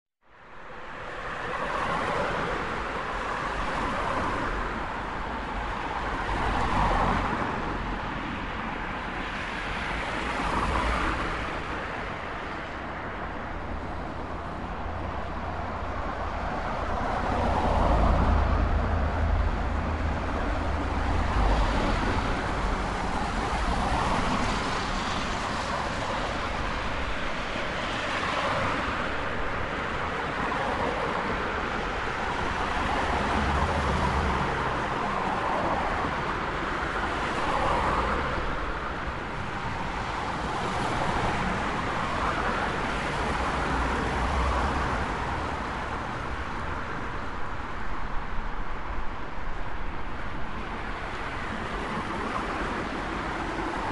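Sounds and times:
road noise: 0.2 - 53.9
cars passing: 0.6 - 53.9.

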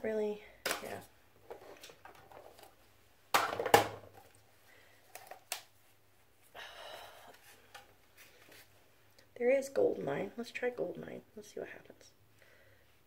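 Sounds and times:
plastic containers clattering: 0.6 - 4.4, 5.0 - 5.6.

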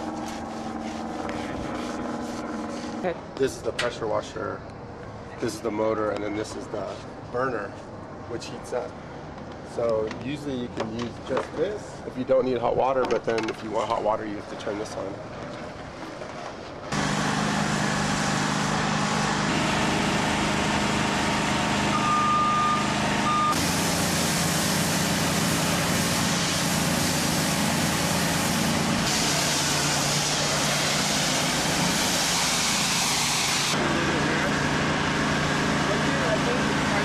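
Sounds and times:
pressure washer motor running: 0.0 - 3.1, 16.9 - 37.0
high-pressure spray hissing: 16.9 - 20.5, 21.9 - 33.8
high beep: 21.9 - 23.6.

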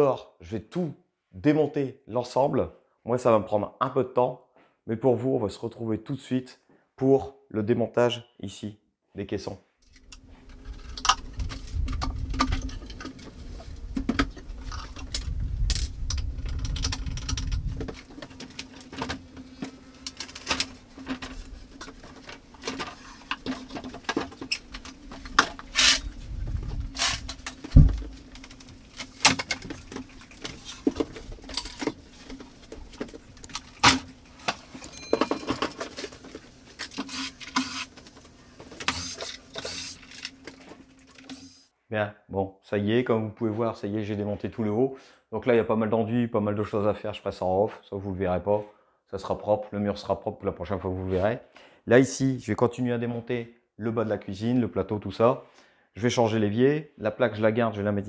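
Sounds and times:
low handling rumble: 26.0 - 28.9
wooden cabinets knocking and clattering: 27.6 - 28.2.

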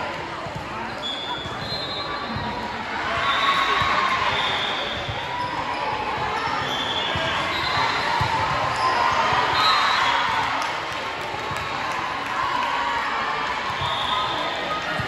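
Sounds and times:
voices chattering and echoing: 0.0 - 15.0.

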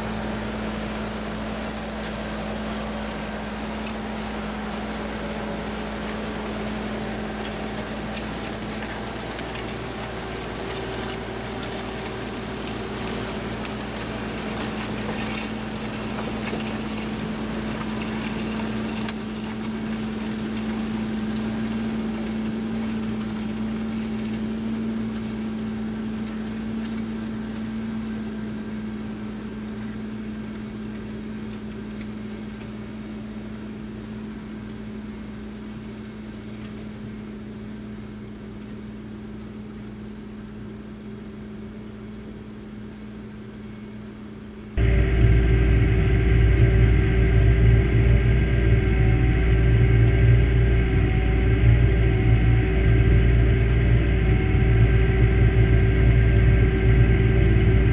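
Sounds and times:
tractor diesel engine under load: 0.0 - 57.9.

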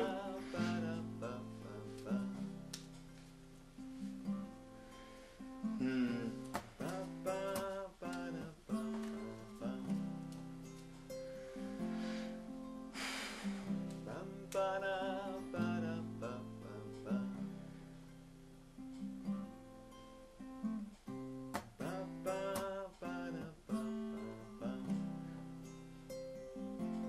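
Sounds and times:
acoustic guitar playing: 0.0 - 27.0.

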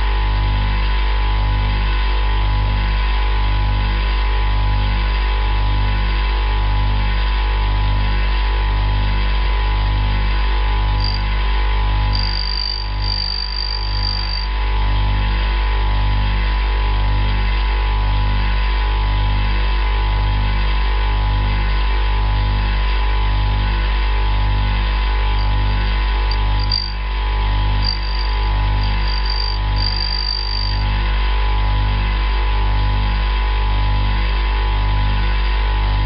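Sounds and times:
thin high whine: 10.9 - 11.4, 12.0 - 14.6, 25.3 - 31.0
bench grinder humming: 11.0 - 11.3, 12.1 - 14.5, 25.4 - 30.9.

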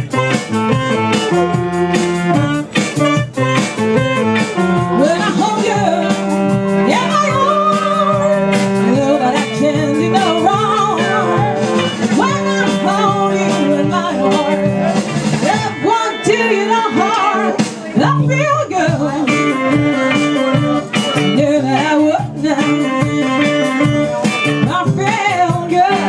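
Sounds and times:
bass guitar: 0.0 - 26.0
electric guitar: 0.0 - 26.0
saxophone: 0.0 - 26.0
woman singing with vibrato: 4.8 - 20.5, 21.2 - 23.8, 24.5 - 26.0.

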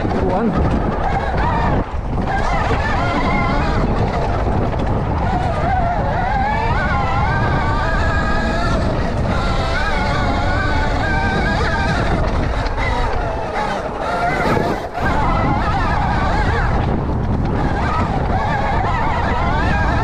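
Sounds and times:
electric motor whine: 0.0 - 20.0
wind and tyre noise: 0.0 - 20.0.

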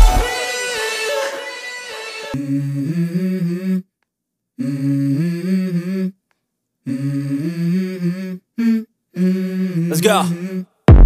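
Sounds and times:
hummed vocal melody: 0.0 - 3.9, 4.6 - 6.2, 6.8 - 10.9.

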